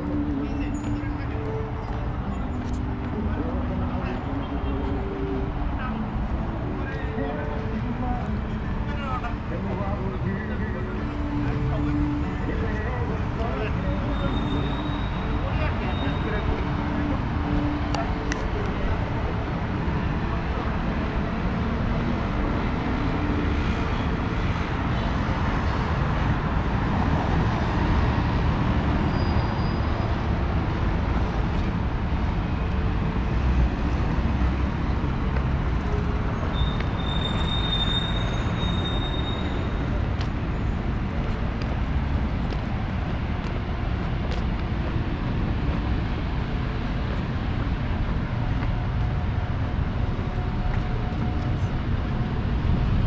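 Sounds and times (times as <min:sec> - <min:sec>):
road traffic rumble: 0:00.0 - 0:53.0
high-pitched squeal: 0:36.3 - 0:40.8.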